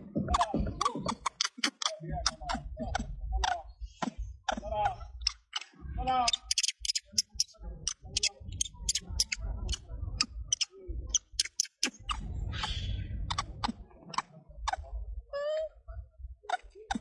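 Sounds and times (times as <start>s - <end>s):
sharp clicks: 1.1s - 3.1s, 5.2s - 5.7s, 6.3s - 12.1s
low rumble: 12.0s - 14.0s.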